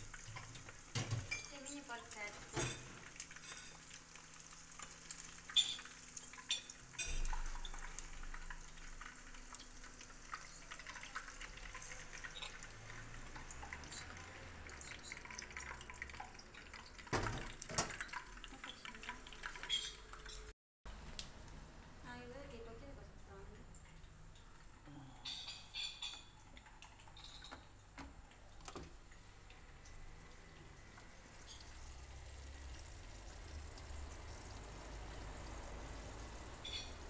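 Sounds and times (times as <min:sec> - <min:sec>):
meatballs sizzling in oil: 0:00.0 - 0:17.0, 0:29.2 - 0:37.0.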